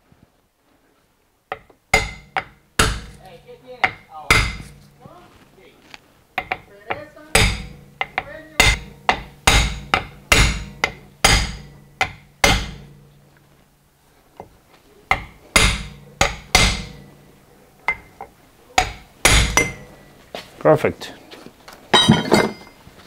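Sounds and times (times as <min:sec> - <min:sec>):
hammer striking metal socket: 0:06.4 - 0:13.0, 0:17.9 - 0:19.8.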